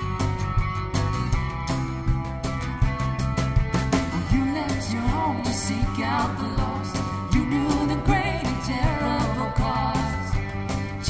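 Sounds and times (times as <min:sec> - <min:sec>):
electric guitar: 0:00.0 - 0:11.0
live band playing: 0:00.0 - 0:11.0
women singing together: 0:04.3 - 0:10.4.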